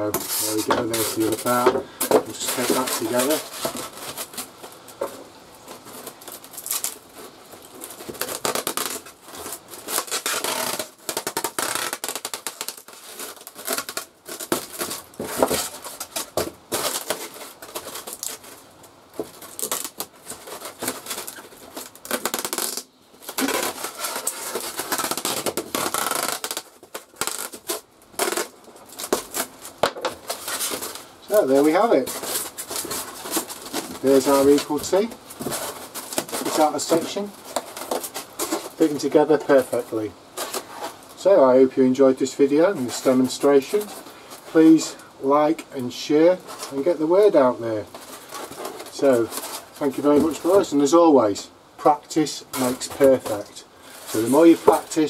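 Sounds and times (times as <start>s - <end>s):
tape rubbed onto foam: 0.0s - 1.7s, 2.3s - 4.8s, 5.6s - 18.6s, 19.3s - 41.0s, 52.6s - 55.0s
tape pulled off roll: 0.0s - 39.7s.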